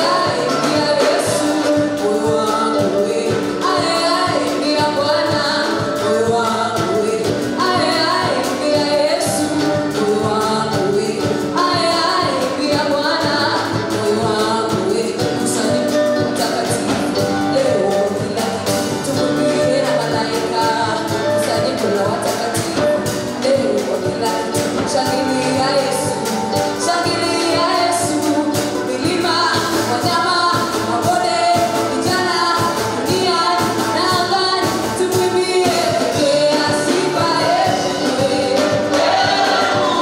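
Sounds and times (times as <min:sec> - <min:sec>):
instrumental accompaniment with beat: 0:00.0 - 0:40.0
woman singing on microphone: 0:00.0 - 0:40.0
backing singers: 0:35.6 - 0:40.0.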